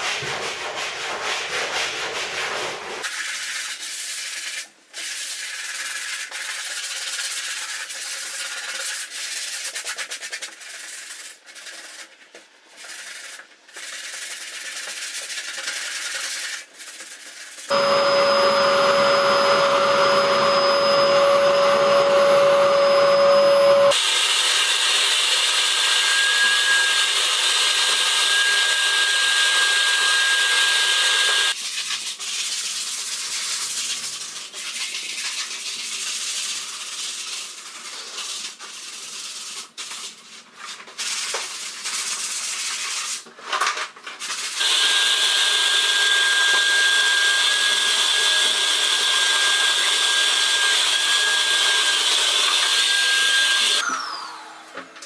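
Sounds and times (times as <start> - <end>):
rubbing and knocks: 0.0 - 3.0
vacuum cleaner whining: 17.7 - 31.6, 44.6 - 55.0.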